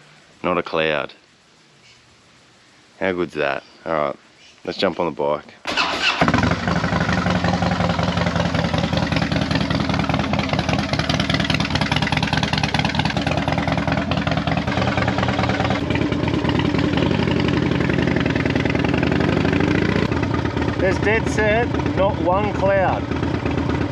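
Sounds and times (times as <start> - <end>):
motorcycle engine idling: 5.8 - 23.9.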